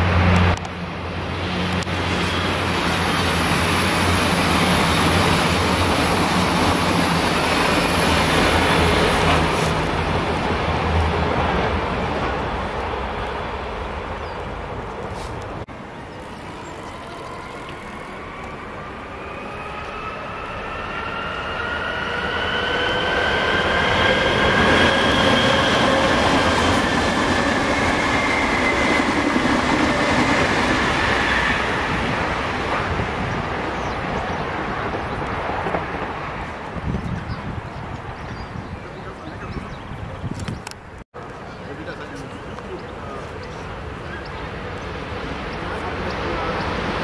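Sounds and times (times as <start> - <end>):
wheels rumbling on rail: 0.0 - 47.0
electric train drive whining: 15.8 - 33.3.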